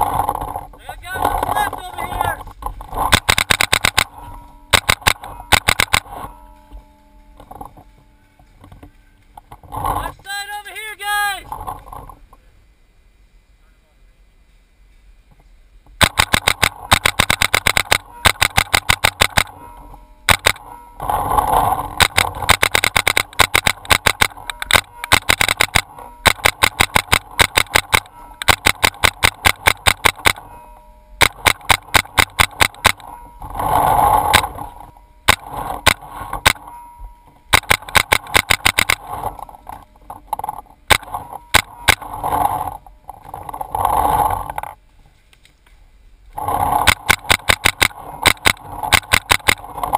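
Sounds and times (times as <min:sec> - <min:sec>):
paintball marker firing: 0:16.0 - 0:19.6, 0:20.3 - 0:20.6, 0:22.0 - 0:30.4, 0:37.5 - 0:39.0, 0:46.8 - 0:49.6.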